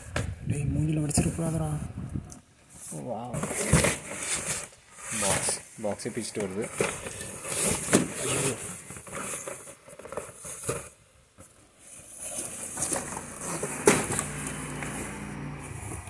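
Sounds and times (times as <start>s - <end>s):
cardboard boxes rustling and knocking: 3.2s - 16.0s.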